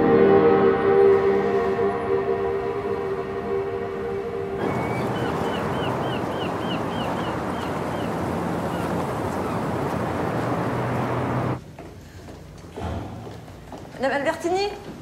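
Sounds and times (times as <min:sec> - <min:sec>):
steady rushing wash: 0:04.6 - 0:11.6.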